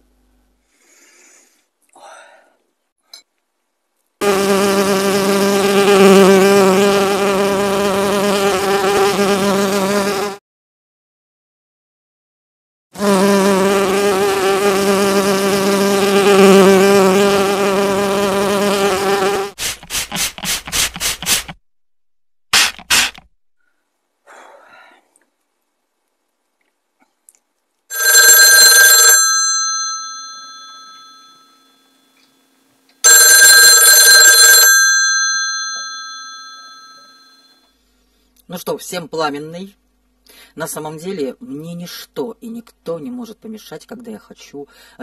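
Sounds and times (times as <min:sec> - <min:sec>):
housefly buzzing: 0:04.2 - 0:10.4, 0:13.0 - 0:19.6
telephone bell ringing: 0:27.9 - 0:32.0, 0:33.0 - 0:37.7.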